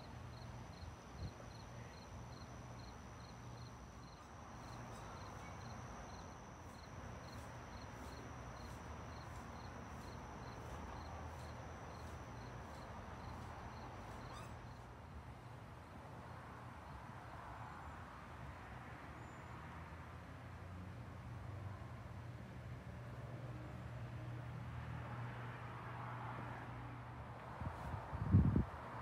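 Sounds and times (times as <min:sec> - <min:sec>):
high insect chirps: 0:00.0 - 0:15.2
insects trilling: 0:00.3 - 0:14.9.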